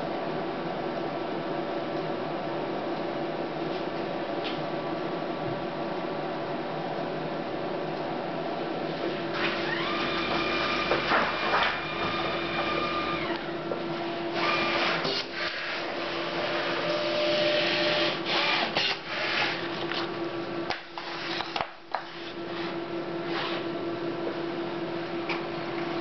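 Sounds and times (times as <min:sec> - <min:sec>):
inkjet printer humming: 0:09.3 - 0:15.1, 0:16.0 - 0:18.6.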